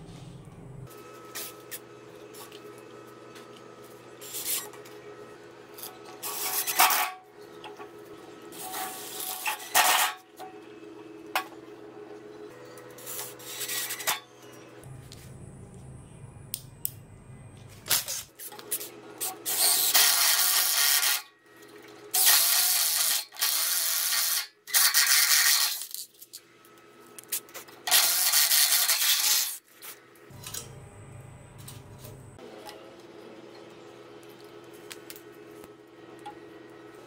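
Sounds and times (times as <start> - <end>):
steady low hum: 0.0 - 6.2, 14.3 - 19.3, 30.2 - 37.0.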